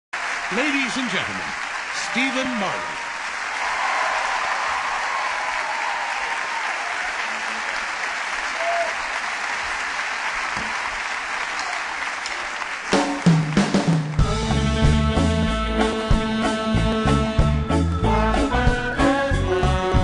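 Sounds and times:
audience applauding: 0.1 - 14.3
bass notes: 14.2 - 20.0.

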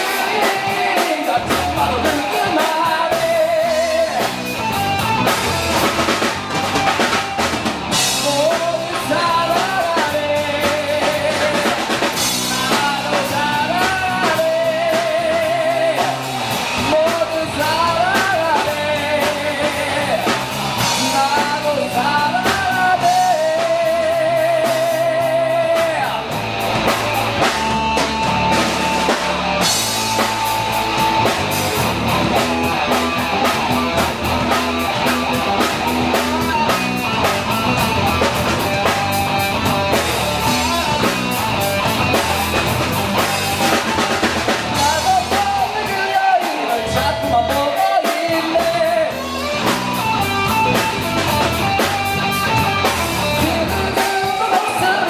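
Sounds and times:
man singing with vibrato: 0.0 - 5.0, 7.9 - 26.6, 39.3 - 42.6, 43.2 - 50.1, 51.7 - 55.0
rock band playing: 0.0 - 55.0.

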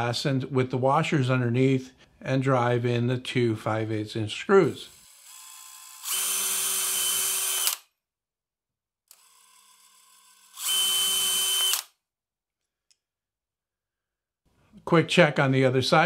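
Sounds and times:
cordless drill whining: 4.9 - 7.8, 9.1 - 12.0.

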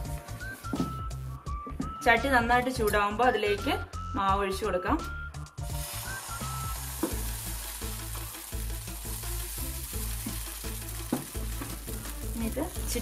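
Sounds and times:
batter sizzling in a hot pan: 5.6 - 13.0.

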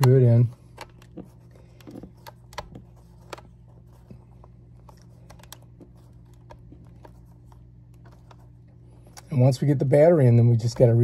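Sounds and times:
screwdriver clicking on plastic: 0.0 - 3.5.

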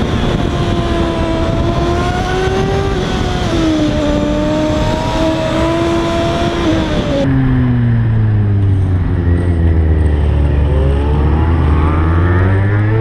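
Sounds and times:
motorcycle engine at high revs: 0.0 - 7.9
wind rush: 0.0 - 9.3.

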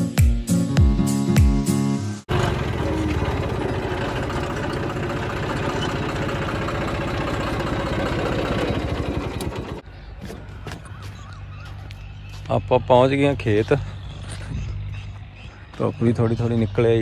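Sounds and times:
tractor diesel engine running: 2.3 - 17.0.

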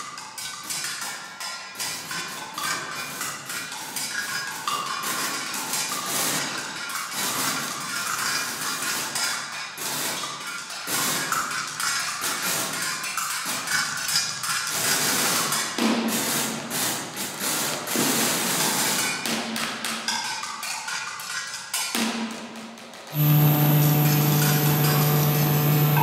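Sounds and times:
low electronic hum: 23.2 - 26.0.

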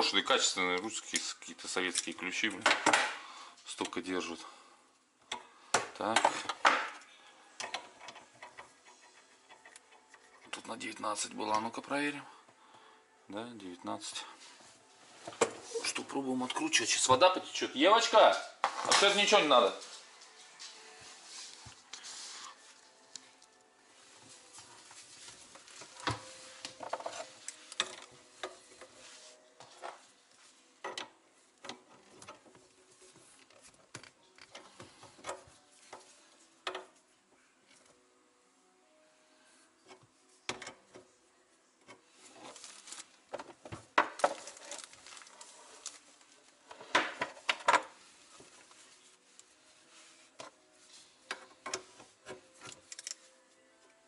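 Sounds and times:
cloth rag rubbing pipe: 20.9 - 22.9, 48.0 - 51.2.

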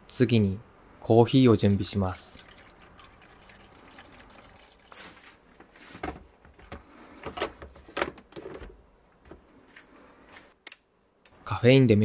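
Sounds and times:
water trickling into a tank: 2.0 - 5.4.

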